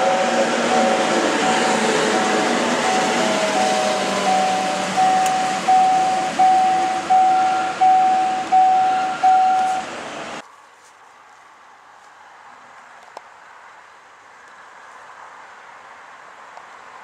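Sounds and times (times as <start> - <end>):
level crossing bell ringing: 0.0 - 9.9
passing electric train: 0.0 - 10.4.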